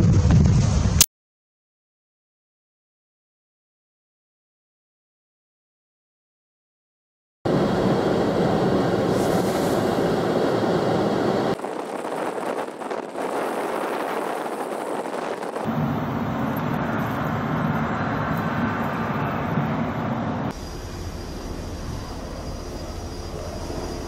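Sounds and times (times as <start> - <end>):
wind blowing across microphone: 7.5 - 24.0.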